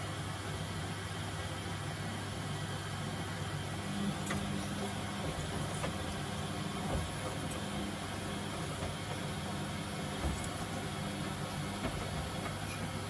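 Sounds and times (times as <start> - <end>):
washing machine motor hum: 0.0 - 13.0
drum swishing laundry: 3.7 - 13.0.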